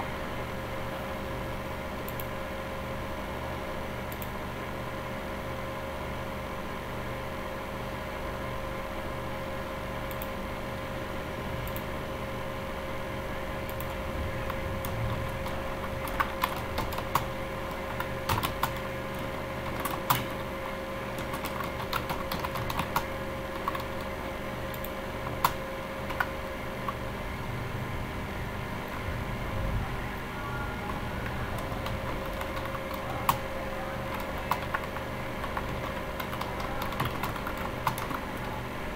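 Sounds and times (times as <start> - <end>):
background hum: 0.0 - 38.9
typing on keyboard: 13.7 - 27.0, 30.8 - 38.6.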